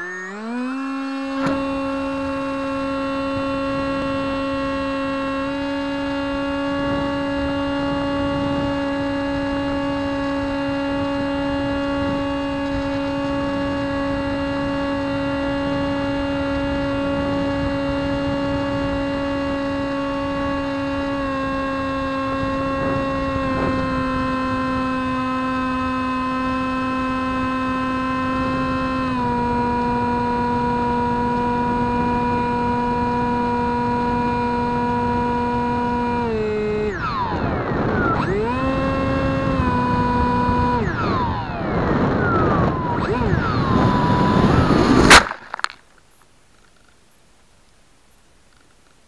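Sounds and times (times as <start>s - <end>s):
model plane motor whining: 0.0s - 45.3s
wind on microphone: 1.1s - 45.3s.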